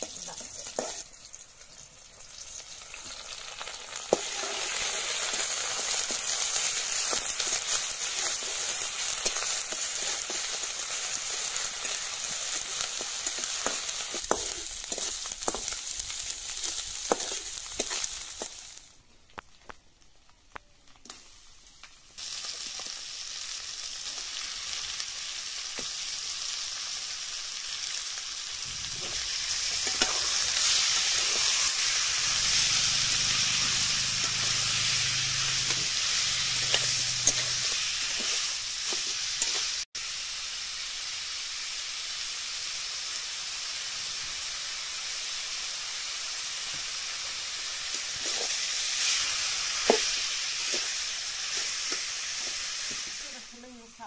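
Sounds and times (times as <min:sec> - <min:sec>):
metal spatula scraping pan: 0:00.0 - 0:01.1, 0:28.7 - 0:39.7
chicken sizzling in hot oil: 0:00.0 - 0:54.0.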